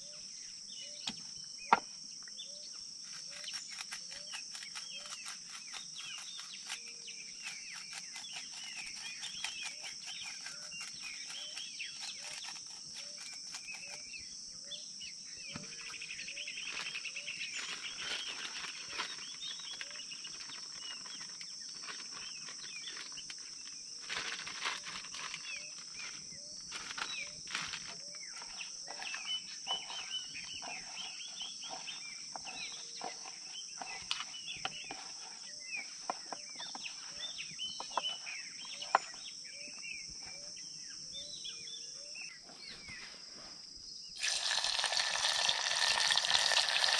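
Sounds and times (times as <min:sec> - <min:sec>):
insect chorus: 0:00.0 - 0:46.9
birds chirping and calling: 0:25.5 - 0:43.2.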